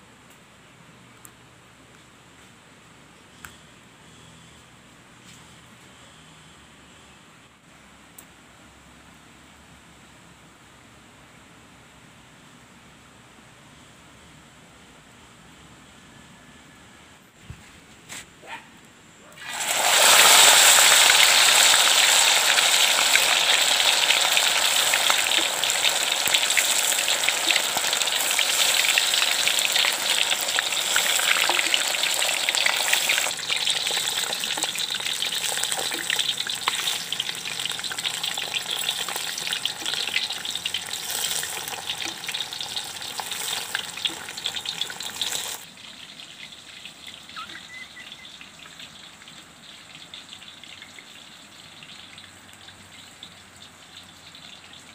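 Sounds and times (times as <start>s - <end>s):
fish sizzling in hot oil: 19.4s - 54.9s.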